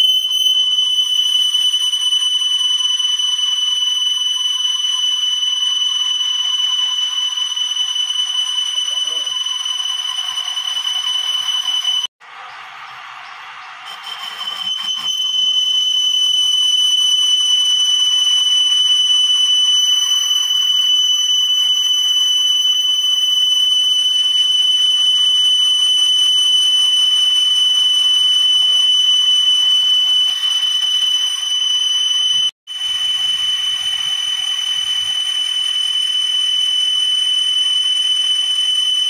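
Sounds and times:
lathe tool squealing on steel: 0.0s - 12.1s, 13.6s - 24.4s.

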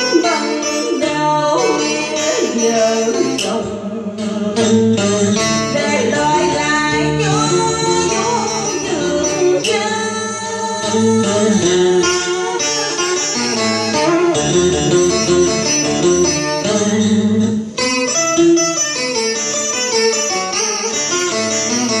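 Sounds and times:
person singing ornamented notes: 0.0s - 13.4s
plucked guitar: 0.0s - 22.0s.

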